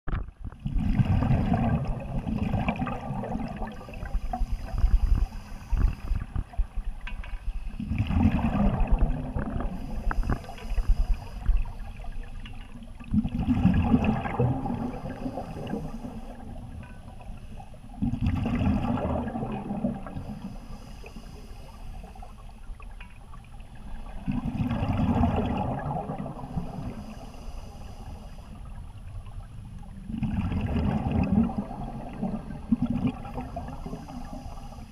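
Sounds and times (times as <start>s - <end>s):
underwater exhaust bubbles: 0.1s - 34.9s
regulator hiss on inhale: 3.7s - 6.6s, 9.6s - 12.0s, 14.7s - 16.6s, 20.1s - 22.7s, 26.4s - 28.8s, 33.4s - 34.9s.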